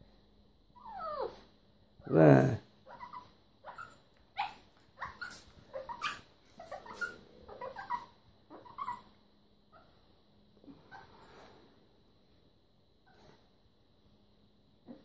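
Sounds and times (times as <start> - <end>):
dog whimpering and yipping: 0.8 - 1.5, 2.8 - 10.0.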